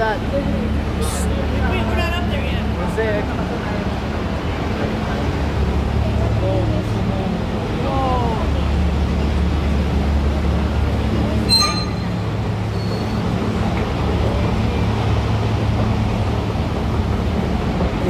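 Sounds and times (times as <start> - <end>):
escalator machinery hum: 0.0 - 18.0
high-pitched ringing tone: 11.5 - 12.1.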